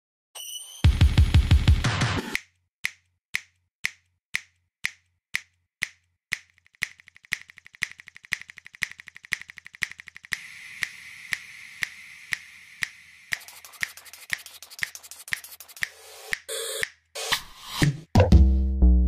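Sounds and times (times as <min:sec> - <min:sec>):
rhythmic snapping beat: 0:01.1 - 0:18.6
hiss: 0:10.4 - 0:15.0.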